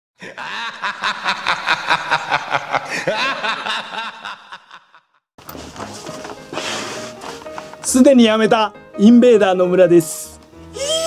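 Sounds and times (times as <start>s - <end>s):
person laughing: 0.2s - 5.2s.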